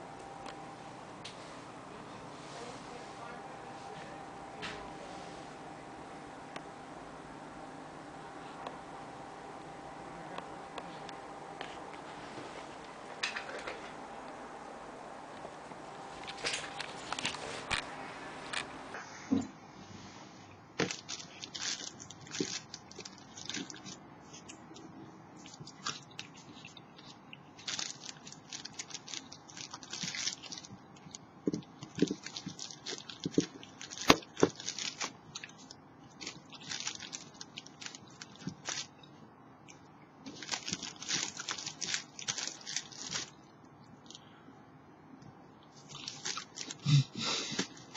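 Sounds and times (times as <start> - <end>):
plastic bag crinkling: 20.8 - 39.2, 40.3 - 43.4, 45.7 - 47.9
chewing: 20.8 - 43.3, 45.6 - 47.0.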